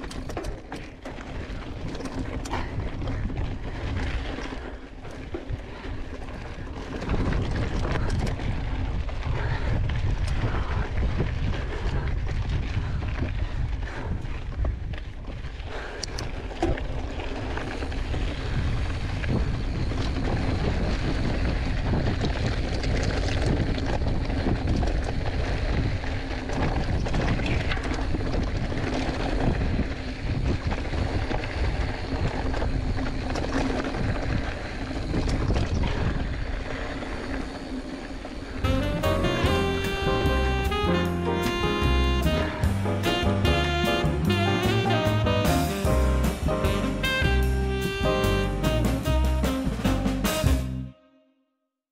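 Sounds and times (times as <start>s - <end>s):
bike rattles and knocks: 0.0s - 37.8s
wind buffeting microphone: 0.0s - 47.4s
bike tyre noise: 0.0s - 50.8s.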